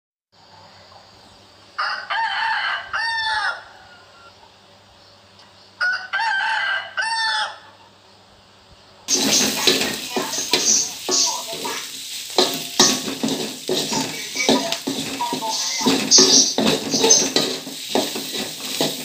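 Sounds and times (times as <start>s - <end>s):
rooster crowing: 1.8s - 4.5s, 5.8s - 7.8s
food sizzling in a wok: 9.1s - 19.0s.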